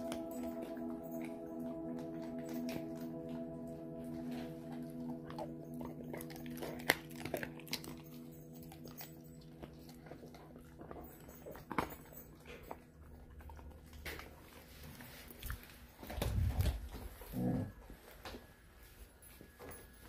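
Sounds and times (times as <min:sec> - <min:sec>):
dog chewing bone: 0:04.1 - 0:17.6.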